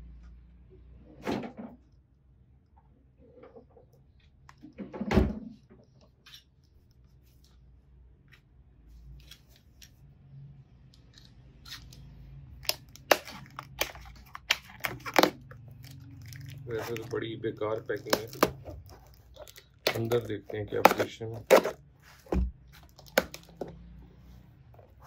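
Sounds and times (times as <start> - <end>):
sharp cracks and rips of tape: 11.6 - 21.7
box cutter slicing cardboard: 19.9 - 22.4
thump on parcel: 20.9 - 22.6.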